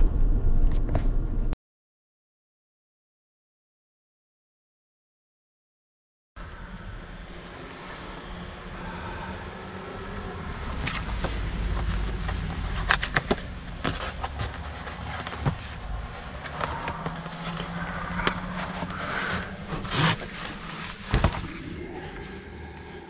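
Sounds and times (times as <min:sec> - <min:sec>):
low rumble: 0:00.0 - 0:01.6, 0:06.4 - 0:23.0
cardboard and paper rustling: 0:10.6 - 0:23.0.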